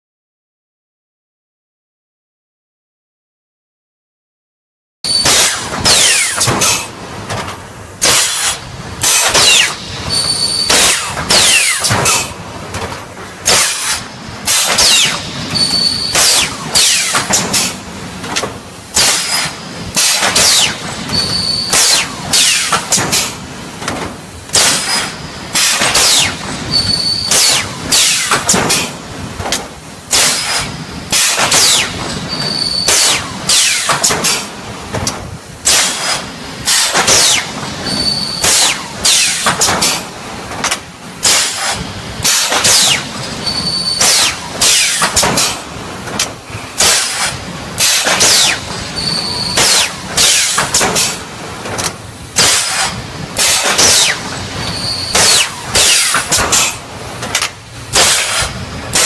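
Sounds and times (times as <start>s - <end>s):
pneumatic air hisses: 5.1s - 6.9s, 8.0s - 12.4s, 13.4s - 17.8s, 18.9s - 23.4s, 24.5s - 29.0s, 30.1s - 34.5s, 35.6s - 40.1s, 41.2s - 45.6s, 46.5s - 51.3s, 52.4s - 56.8s, 57.9s - 59.0s
machine clanking: 5.1s - 59.0s.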